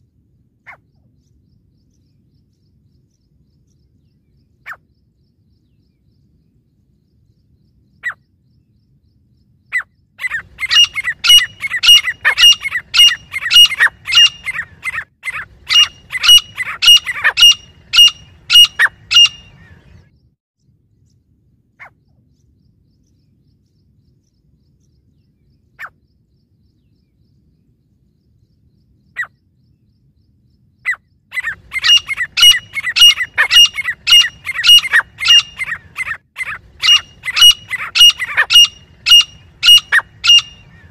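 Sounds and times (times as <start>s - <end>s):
francolins calling ringing notes: 10.3s - 19.6s, 31.4s - 40.9s.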